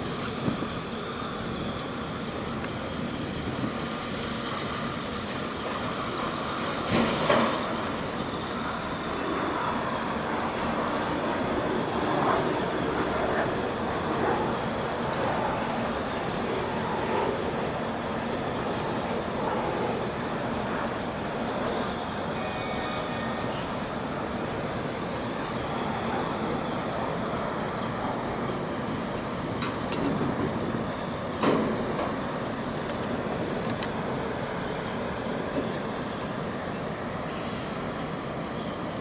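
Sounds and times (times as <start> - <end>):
wind on microphone: 0.0 - 4.0.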